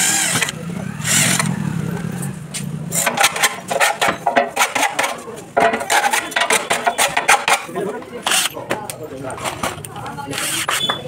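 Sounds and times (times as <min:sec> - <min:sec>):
cordless drill boring through metal: 0:00.0 - 0:01.5
hand file rasping on metal: 0:03.0 - 0:05.2, 0:05.8 - 0:08.6, 0:10.3 - 0:11.0.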